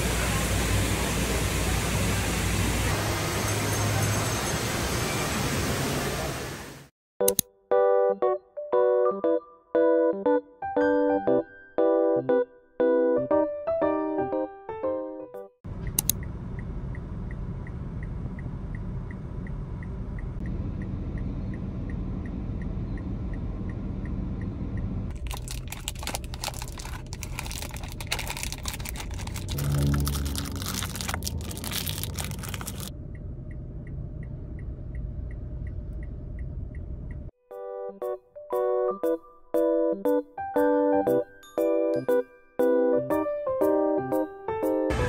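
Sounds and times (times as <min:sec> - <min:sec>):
low car rumble: 0:15.7 - 0:37.4
foil wrapper crinkling: 0:25.1 - 0:32.9.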